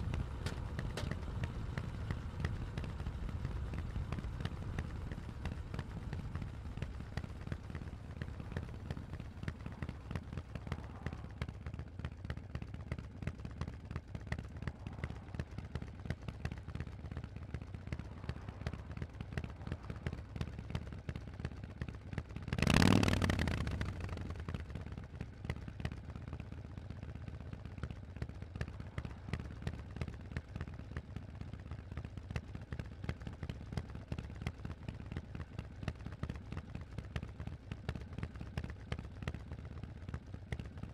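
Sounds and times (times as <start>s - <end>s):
motorcycle engine rumbling: 0.0s - 26.0s.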